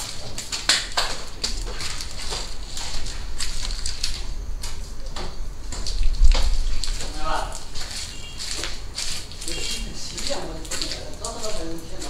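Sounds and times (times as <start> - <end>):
footsteps crunching on debris: 0.0 - 12.0
low rumble: 1.6 - 7.8.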